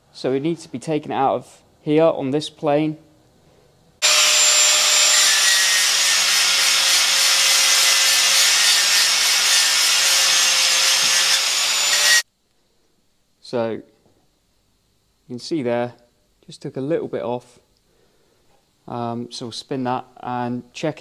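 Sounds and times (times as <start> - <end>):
angle grinder grinding metal: 4.0 - 12.2.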